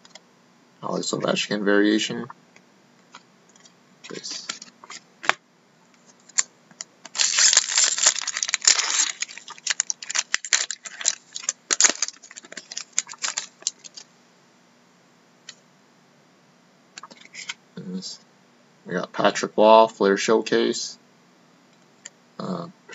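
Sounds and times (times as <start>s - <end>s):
foil wrapper crinkling and tearing: 7.0s - 14.1s.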